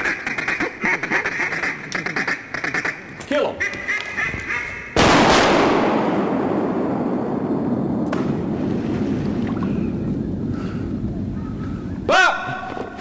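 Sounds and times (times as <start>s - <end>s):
flood water sloshing: 8.4s - 10.2s.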